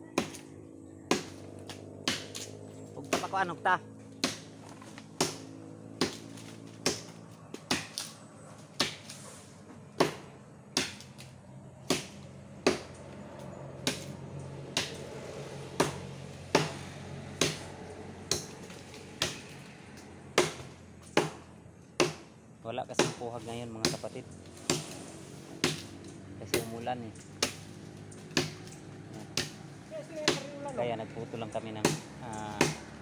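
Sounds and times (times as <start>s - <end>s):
machete chopping wood: 0.1s - 0.5s, 1.1s - 3.5s, 4.2s - 9.2s, 10.0s - 13.0s, 13.8s - 15.2s, 15.8s - 19.6s, 20.3s - 22.3s, 22.9s - 25.0s, 25.6s - 29.6s, 30.2s - 30.6s, 31.8s - 33.0s.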